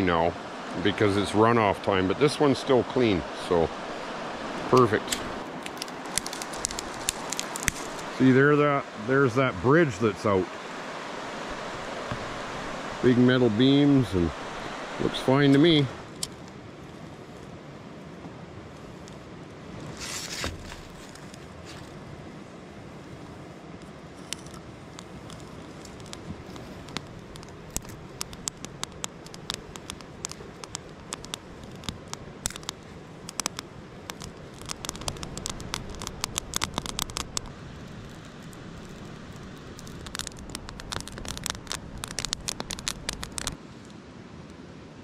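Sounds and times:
steady rushing hiss: 0:00.0 - 0:45.0
fire crackling and snapping: 0:03.6 - 0:08.4, 0:10.6 - 0:17.5, 0:18.6 - 0:22.1, 0:23.8 - 0:43.9.

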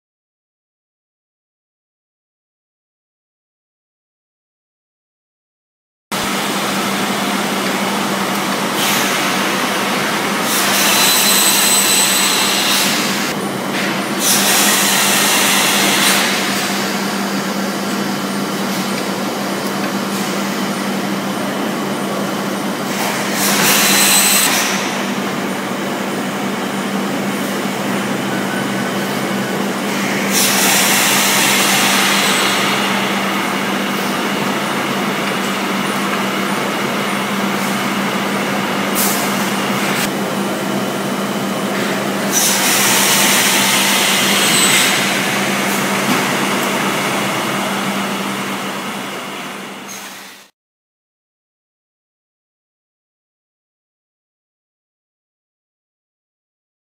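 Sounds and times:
machine hum: 0:06.1 - 0:50.5.

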